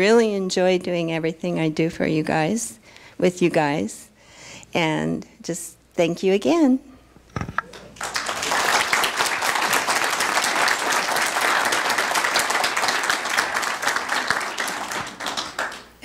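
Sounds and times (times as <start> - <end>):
crowd applauding: 7.7 - 16.0.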